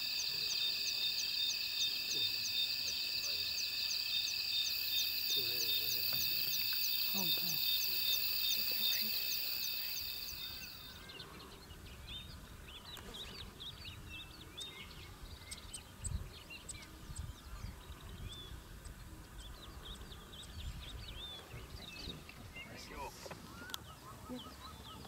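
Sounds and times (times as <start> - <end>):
night insects chorus: 0.0 - 11.3
birds chirping and calling: 0.0 - 11.7.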